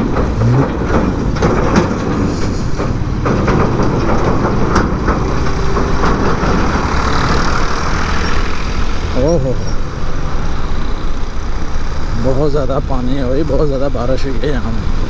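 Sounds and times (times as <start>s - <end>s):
trolley rattling knocks: 0.0s - 9.2s
low engine rumble: 0.0s - 15.0s.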